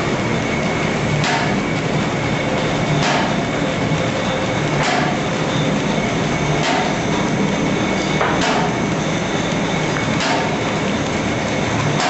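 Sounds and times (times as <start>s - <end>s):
sharp machine knock: 1.2s - 1.6s, 3.0s - 3.4s, 4.8s - 5.2s, 6.6s - 6.9s, 8.2s - 8.7s, 10.2s - 10.5s.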